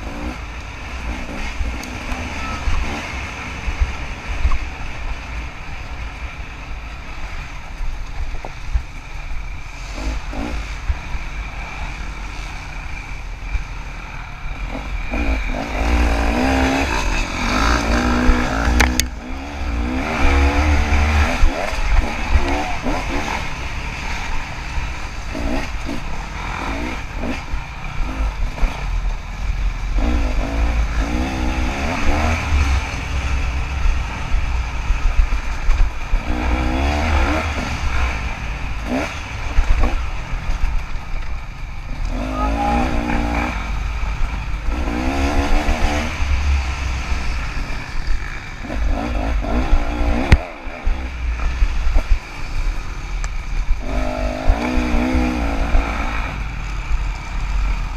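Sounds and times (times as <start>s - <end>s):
dirt bike engine revving: 0.0s - 4.5s, 9.0s - 57.9s
heavy low rumble: 12.9s - 57.7s.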